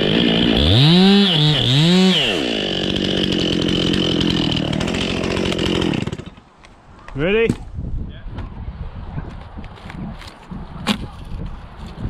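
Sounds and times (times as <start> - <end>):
chainsaw running at high revs: 0.0 - 6.4.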